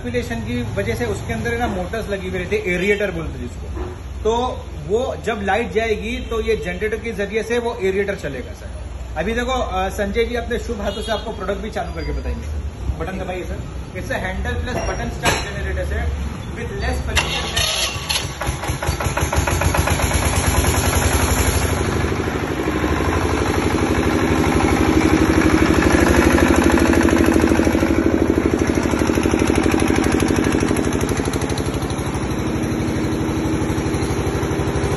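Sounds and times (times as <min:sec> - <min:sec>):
diesel generator engine chugging: 0:16.6 - 0:34.9.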